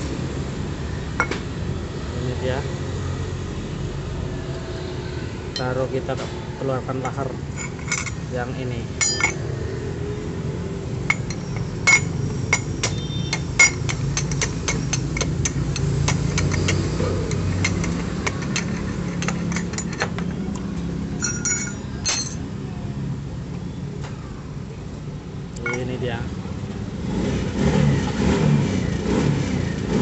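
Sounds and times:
metal clanks: 7.1s - 8.3s, 9.0s - 9.4s, 11.0s - 20.4s, 21.2s - 22.4s, 25.6s - 26.0s.

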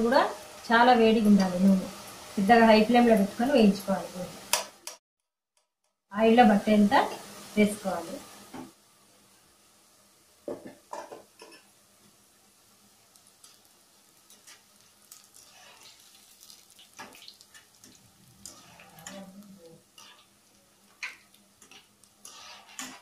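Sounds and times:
batter deep-frying in oil: 0.0s - 5.0s, 6.1s - 23.0s
metal spatula scraping pan: 14.5s - 16.1s, 18.4s - 20.4s, 21.0s - 23.0s.

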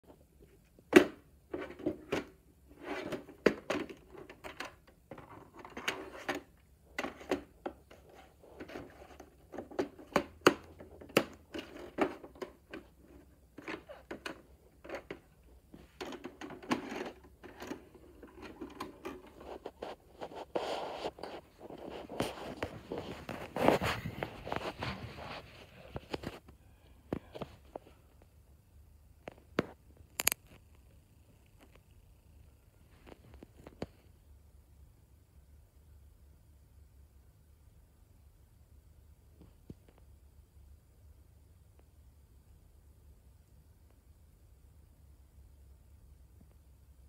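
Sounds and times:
plastic cassette case handling: 3.0s - 19.8s.

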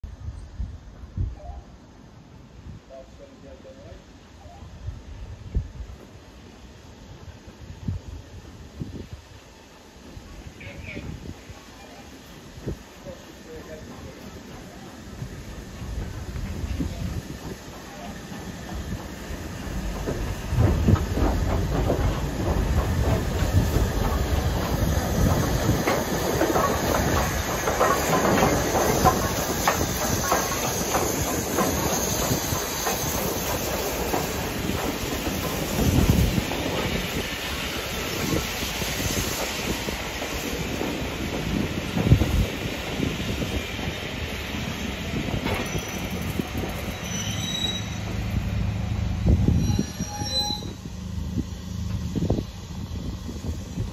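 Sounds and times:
steam hissing: 5.2s - 53.9s
train wheels clicking over rail joints: 12.3s - 48.5s
high wheel squeal: 45.5s - 48.2s, 49.4s - 50.9s.

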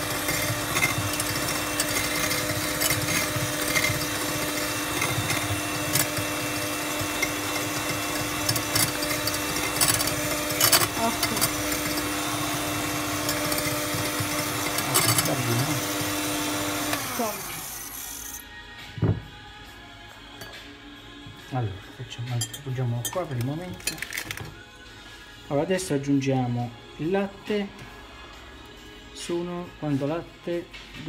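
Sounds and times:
electric hand mixer whisking: 0.0s - 18.4s.

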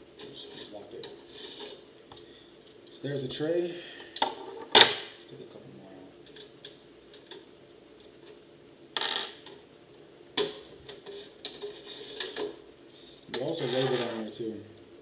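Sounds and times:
metal tray scraping: 0.3s - 1.8s, 11.0s - 12.6s, 13.4s - 14.4s.

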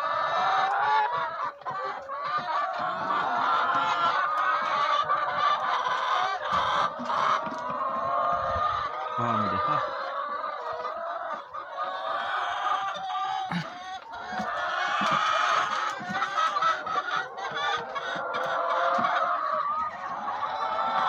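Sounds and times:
hens clucking: 0.0s - 21.0s.

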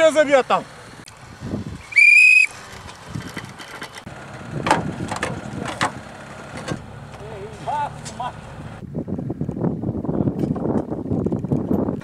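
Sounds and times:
short whistle blast: 1.9s - 2.6s.

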